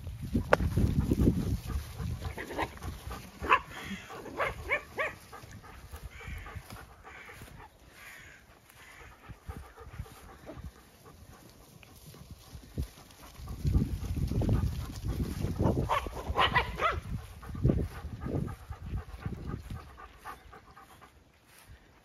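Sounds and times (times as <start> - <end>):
small dogs yapping: 1.7 - 7.8, 15.3 - 17.1.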